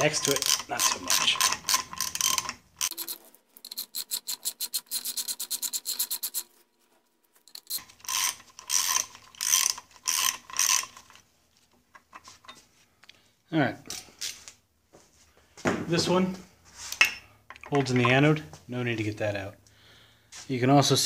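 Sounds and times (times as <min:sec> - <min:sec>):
socket ratchet clicking: 0:00.0 - 0:06.4, 0:07.5 - 0:11.2.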